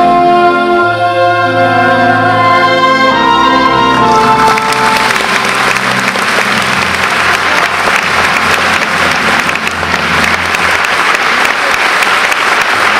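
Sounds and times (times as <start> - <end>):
audience applauding: 4.0 - 12.9.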